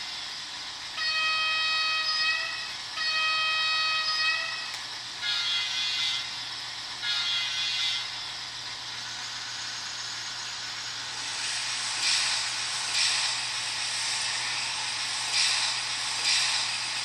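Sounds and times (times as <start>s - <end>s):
model train horn toots: 1.0s - 6.3s, 7.0s - 8.2s.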